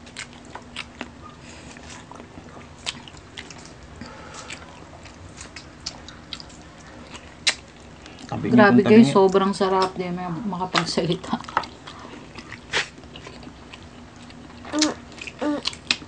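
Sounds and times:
chewing mouth sounds: 0.0s - 8.4s.

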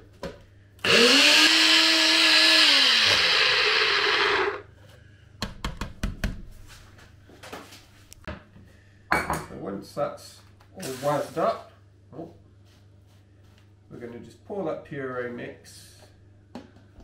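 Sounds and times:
blender motor whining: 0.8s - 4.7s.

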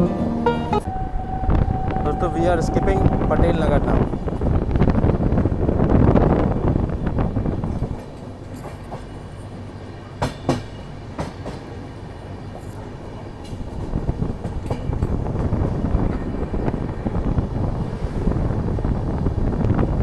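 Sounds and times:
train running noise: 0.0s - 20.0s
train wheel clacks: 7.8s - 12.8s, 13.4s - 16.2s.

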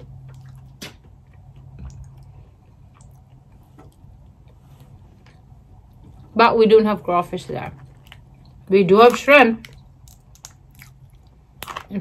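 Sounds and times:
steady low hum: 0.0s - 12.0s
crawfish shells clicking: 9.0s - 12.0s.

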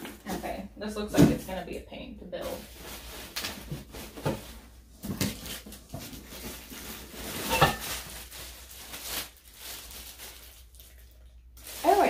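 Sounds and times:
cardboard and plastic rustling: 2.4s - 12.0s.

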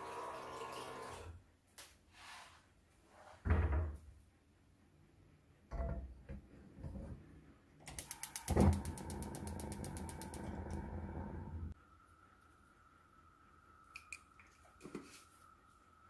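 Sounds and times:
gas igniter clicking: 7.9s - 10.8s
gas flame hissing: 7.9s - 11.8s
gas burner whoosh: 8.0s - 11.8s.

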